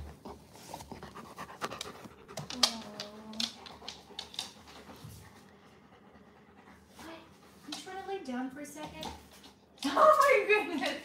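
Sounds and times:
dog panting: 0.0 - 8.5.

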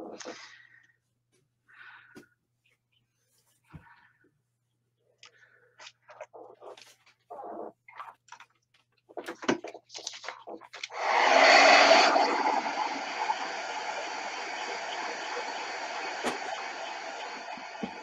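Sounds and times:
heat tool blowing: 10.9 - 18.0.

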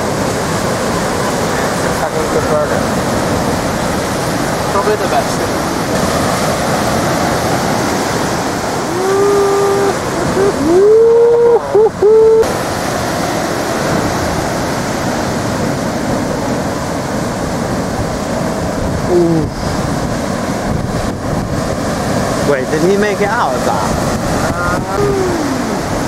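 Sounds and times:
heavy surf breaking: 0.0 - 26.0
wind on microphone: 0.0 - 26.0
person shouting: 8.8 - 12.5, 24.4 - 25.9.

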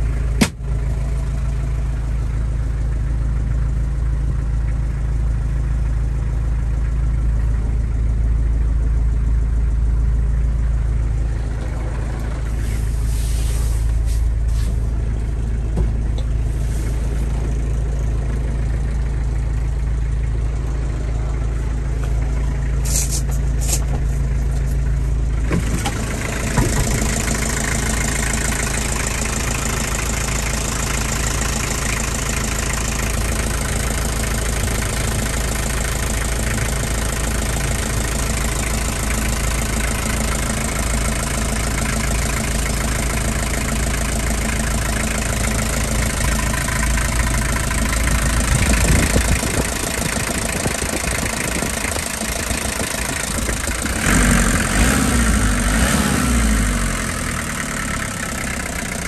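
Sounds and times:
diesel engine idling: 0.0 - 59.0
light engine knocks: 25.5 - 27.2.

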